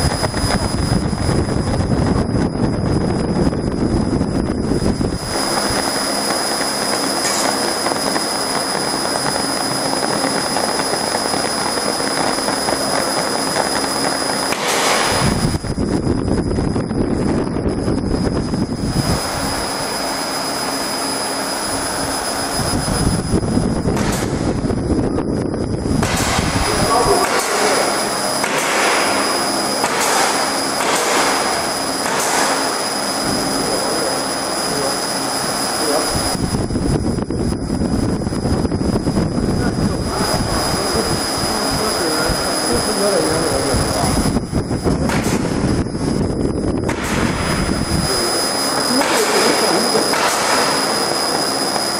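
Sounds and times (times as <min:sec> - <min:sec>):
thin high whine: 0:00.0 - 0:51.9
laser engraving machine hiss: 0:04.8 - 0:15.8, 0:26.0 - 0:36.4, 0:39.5 - 0:44.4, 0:45.1 - 0:51.9
low rumble: 0:14.5 - 0:20.0, 0:21.6 - 0:27.1.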